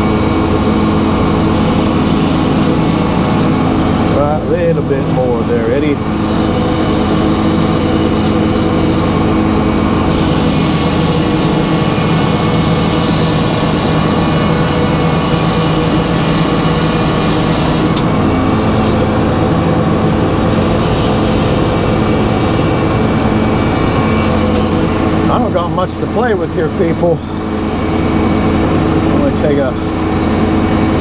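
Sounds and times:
sawmill drone: 0:00.0 - 0:31.0
saw blade cutting log: 0:06.2 - 0:09.2, 0:10.0 - 0:18.0, 0:20.3 - 0:22.2.

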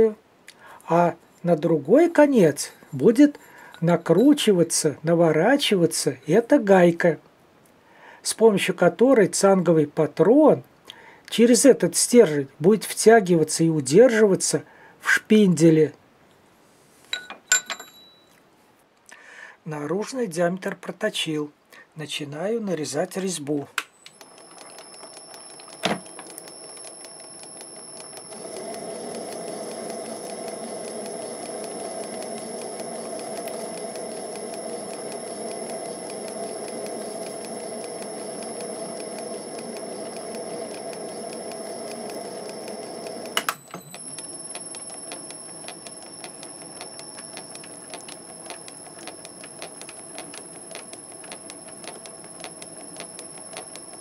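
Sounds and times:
fast fine ticking: 0:24.2 - 0:54.0
lathe humming with high whine: 0:24.2 - 0:54.0.

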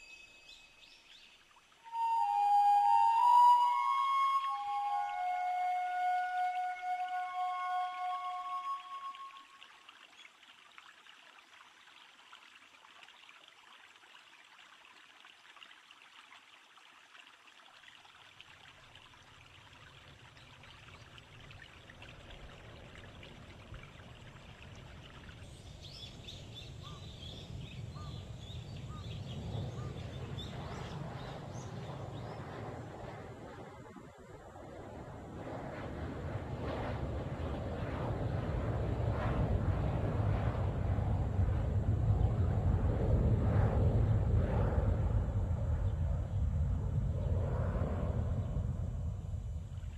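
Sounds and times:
soft steady hiss: 0:00.0 - 0:30.9
low rumble: 0:25.7 - 0:49.9.

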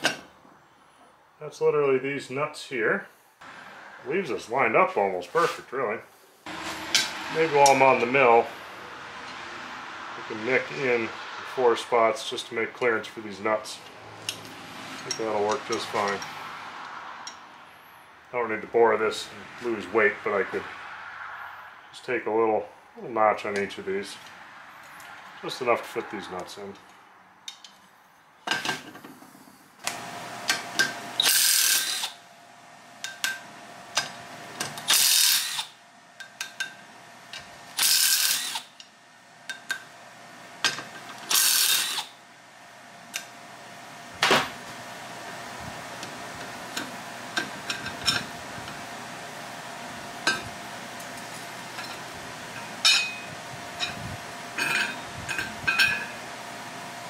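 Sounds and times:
cordless power driver bursts: 0:31.2 - 0:32.2, 0:34.8 - 0:35.8, 0:37.8 - 0:38.8, 0:41.3 - 0:42.2.

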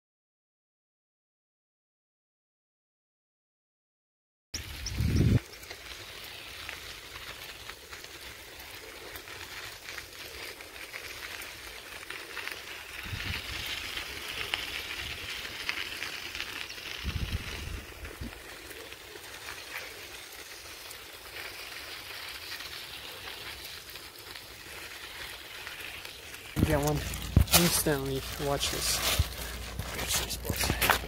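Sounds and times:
wind buffeting microphone: 0:04.6 - 0:05.4, 0:13.0 - 0:13.8, 0:17.0 - 0:18.4
footsteps crunching on gravel: 0:05.7 - 0:31.0.

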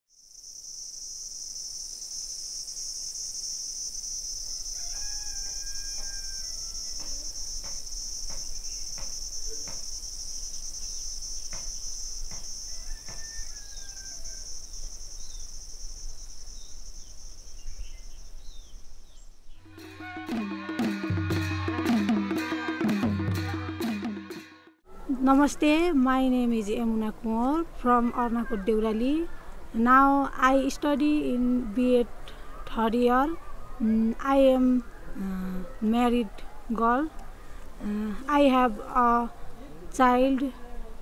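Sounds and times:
insects shrilling: 0:00.2 - 0:17.5.

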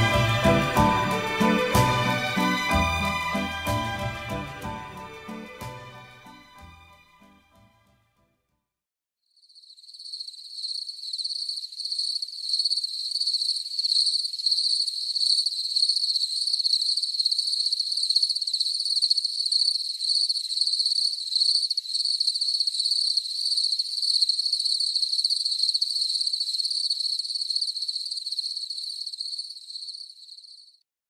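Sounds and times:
music: 0:00.0 - 0:08.0
crickets chirping: 0:09.4 - 0:30.8.

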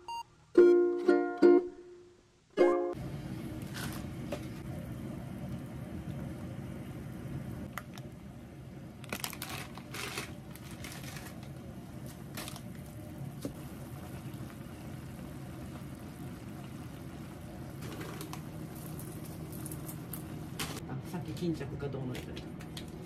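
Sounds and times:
steady low hum: 0:03.0 - 0:23.0
plastic packet crinkling and tearing: 0:09.0 - 0:11.6.

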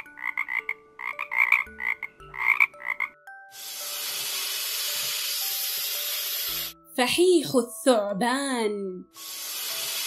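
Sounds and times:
frog croaking: 0:00.0 - 0:03.2
snake hissing: 0:03.5 - 0:06.8, 0:09.1 - 0:10.0.

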